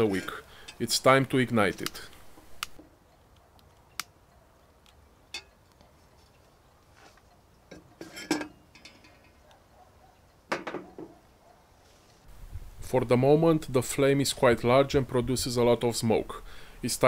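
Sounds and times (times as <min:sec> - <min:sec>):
lighter clicks: 0:01.8 - 0:02.8
light metal clinks: 0:05.3 - 0:06.6, 0:07.2 - 0:09.6.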